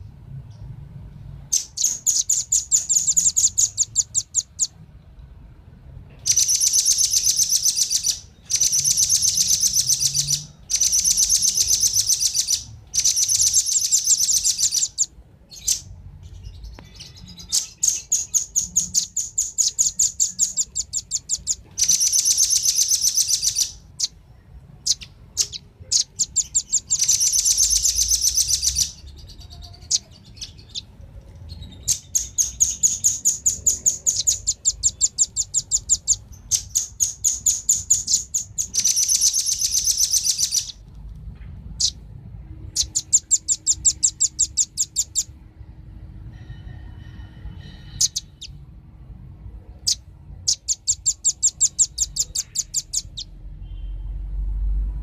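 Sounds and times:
bird trills of high chips: 6.3s - 15.9s, 16.9s - 24.2s, 24.8s - 30.9s, 31.8s - 40.8s.

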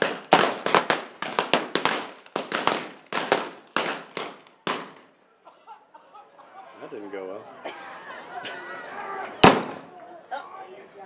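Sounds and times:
blank gunshots with echo: 0.0s - 5.1s, 9.4s - 9.9s.

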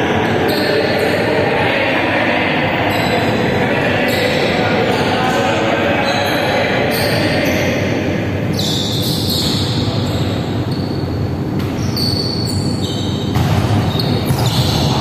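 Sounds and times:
volleyball thudding: 13.3s - 14.9s.

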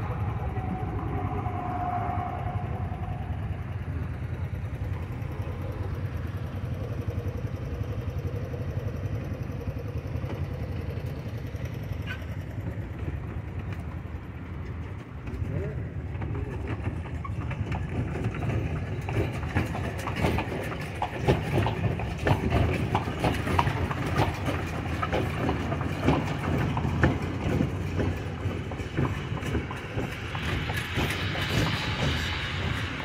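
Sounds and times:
carriage low rumble: 0.0s - 33.0s
horse hooves on pavement: 10.2s - 33.0s.

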